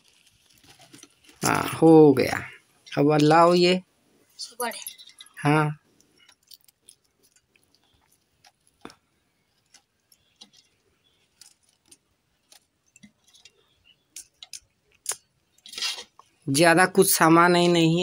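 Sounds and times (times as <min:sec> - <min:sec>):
bangles clinking: 0:04.6 - 0:05.5.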